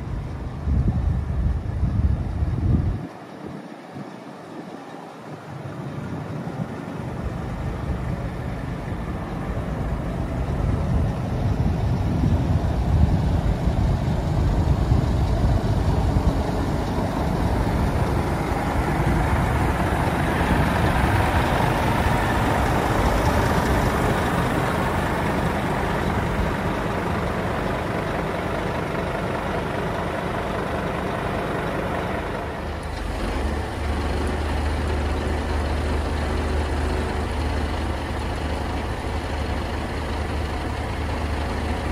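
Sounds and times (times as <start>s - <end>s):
diesel engine idling: 0.0s - 3.1s, 5.1s - 41.9s
wind rumbling on microphone: 0.0s - 29.4s.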